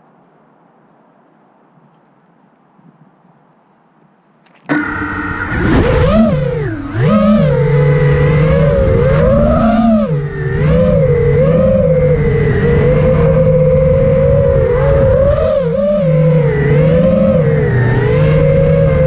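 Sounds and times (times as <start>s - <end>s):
quadcopter motors whining: 4.6s - 19.0s.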